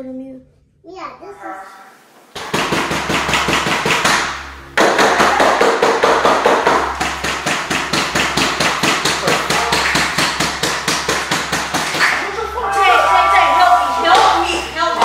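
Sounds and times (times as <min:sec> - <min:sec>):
fast percussive beat: 0:02.4 - 0:12.4.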